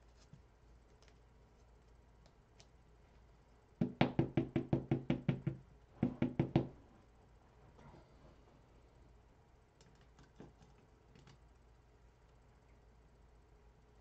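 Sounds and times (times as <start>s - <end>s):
rapid knocking on hollow surface: 3.8s - 6.8s.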